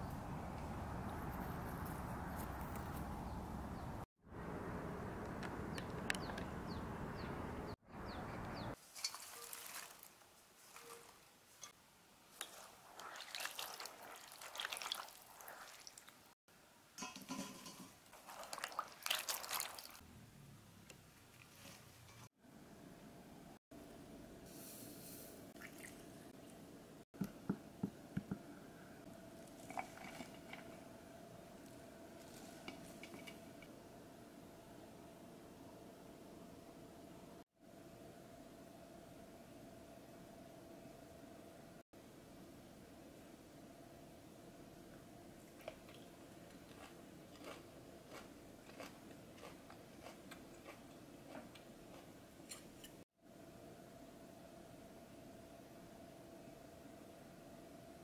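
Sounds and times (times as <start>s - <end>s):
seeds pattering into glass bowl: 8.9s - 10.1s
spoon stirring thick wet sauce: 12.4s - 16.2s, 17.2s - 20.0s
faint steady hum: 22.4s - 58.0s.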